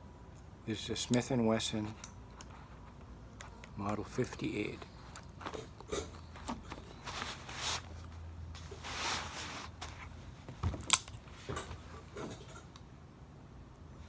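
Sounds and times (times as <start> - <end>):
faint rustles: 1.7 - 10.6.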